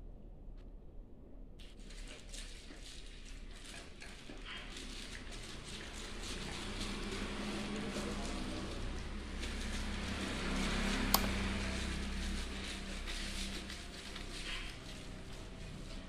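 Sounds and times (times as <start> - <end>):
sharp click: 11.2 - 11.4.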